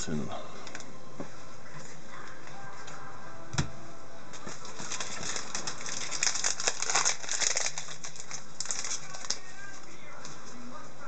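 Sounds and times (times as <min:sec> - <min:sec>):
foil wrapper crinkling: 0:04.5 - 0:10.2.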